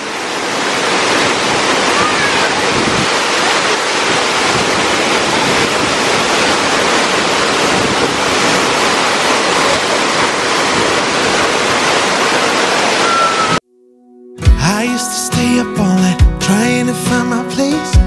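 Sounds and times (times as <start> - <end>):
stream pouring over rocks: 0.0 - 13.6
waterfall rushing: 0.0 - 13.6.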